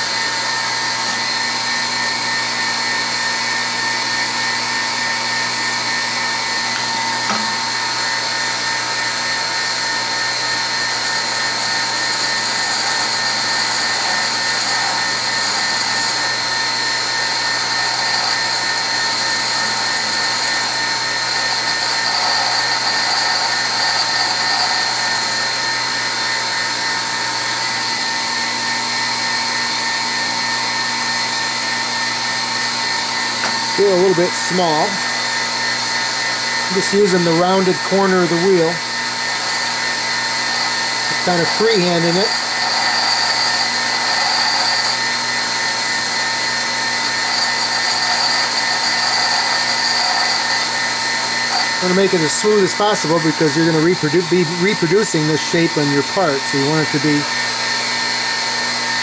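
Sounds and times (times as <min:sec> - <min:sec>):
bench grinder motor whine: 0:00.0 - 0:59.0
grinding hiss of tool on wheel: 0:10.9 - 0:25.7, 0:36.6 - 0:54.2.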